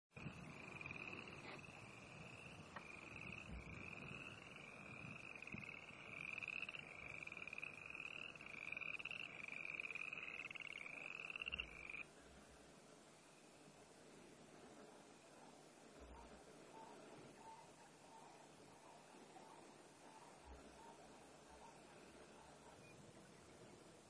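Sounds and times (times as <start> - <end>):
frogs trilling: 0.2 - 12.1.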